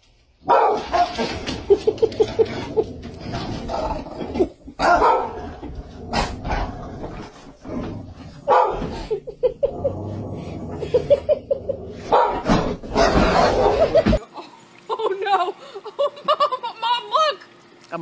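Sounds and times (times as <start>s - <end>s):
dogs barking: 0.4s - 2.0s, 4.8s - 5.6s, 8.4s - 9.3s, 12.0s - 14.2s.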